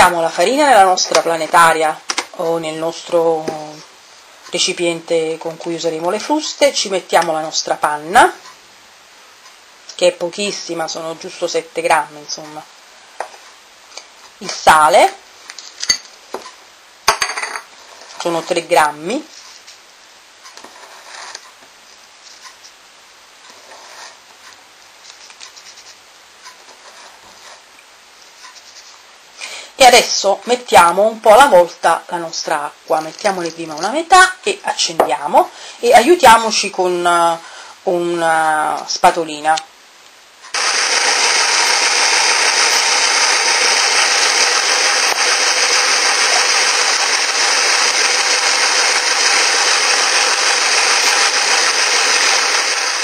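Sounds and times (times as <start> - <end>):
background hiss: 0.0 - 53.0
faint clicks and rustles: 23.4 - 29.1
electric mixer kneading dough: 40.6 - 53.0.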